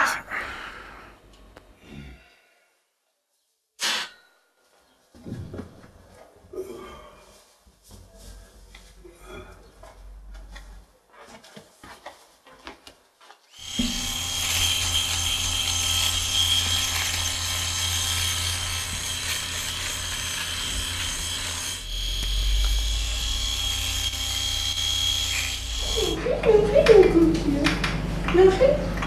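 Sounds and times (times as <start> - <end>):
electric razor buzzing: 13.6 - 27.0.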